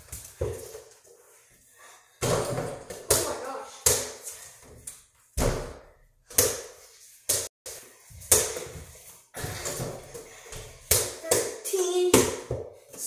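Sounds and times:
basketball bouncing: 0:05.4 - 0:06.6.

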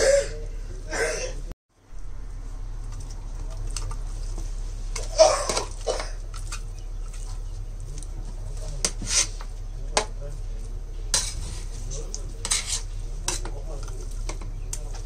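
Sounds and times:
steady low hum: 0:00.0 - 0:15.0
metal spoon stirring in a pot: 0:02.8 - 0:15.0
spoon scraping and clinking on pot: 0:11.1 - 0:11.7, 0:12.4 - 0:14.5.

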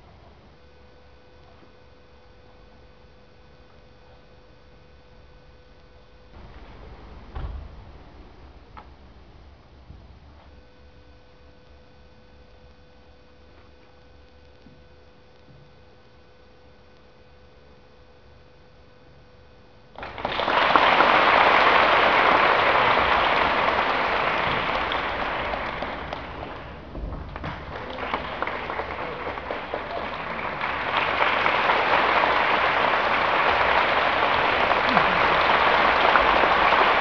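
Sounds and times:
faint steady hum: 0:00.0 - 0:37.0
audience applauding: 0:20.0 - 0:37.0.

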